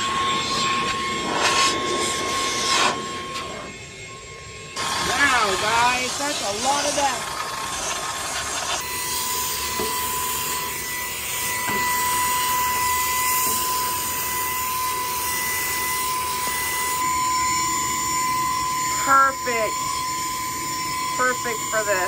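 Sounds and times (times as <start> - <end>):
handheld vacuum motor whine: 0.0 - 22.0.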